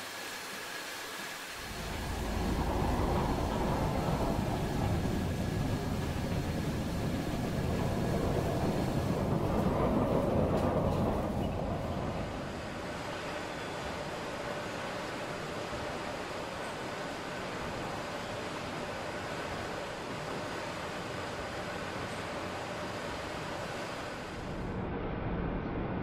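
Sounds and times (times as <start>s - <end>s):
heavy factory machinery rumbling: 1.6s - 16.5s.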